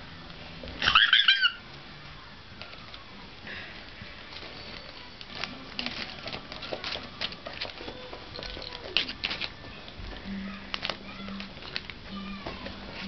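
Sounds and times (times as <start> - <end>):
plastic bag crinkling: 4.2 - 13.0.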